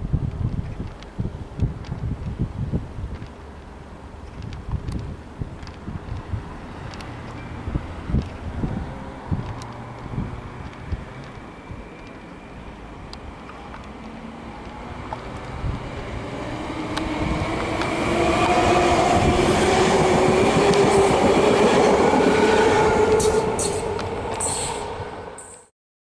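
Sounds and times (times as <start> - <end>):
train wheels rumbling on rails: 4.3 - 25.7
electric train drive whining: 5.7 - 25.7.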